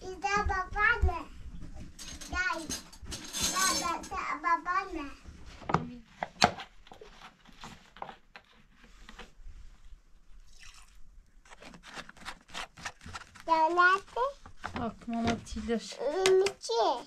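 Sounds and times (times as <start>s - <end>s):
liquid pouring into metal tin: 10.4s - 11.0s
rubber gloves crinkling: 11.4s - 16.2s.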